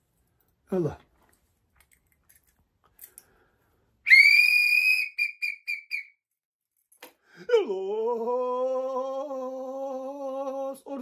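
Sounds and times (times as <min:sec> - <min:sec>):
hand-held whistle blasts: 0:04.0 - 0:06.2.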